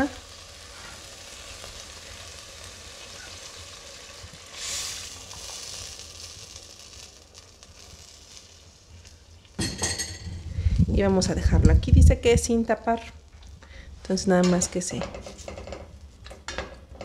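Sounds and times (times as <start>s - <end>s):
chicken sizzling in a pot: 0.0s - 10.9s.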